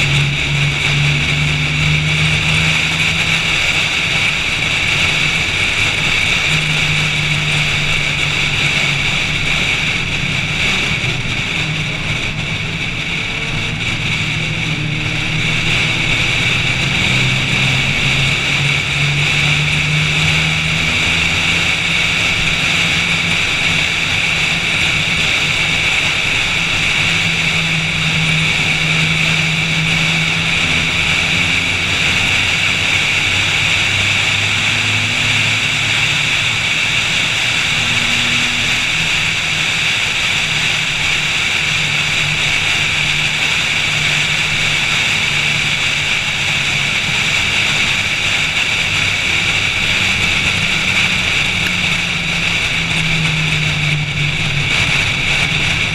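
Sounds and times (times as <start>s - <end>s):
car engine revving: 0.0s - 55.9s
wind noise: 0.0s - 55.9s.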